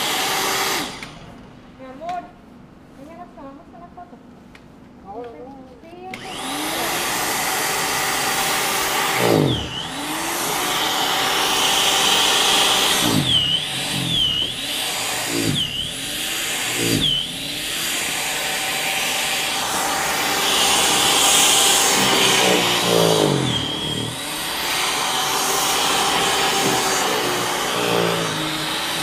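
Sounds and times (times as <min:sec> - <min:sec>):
snow thrower motor whine: 0:00.0 - 0:01.2, 0:06.2 - 0:29.0.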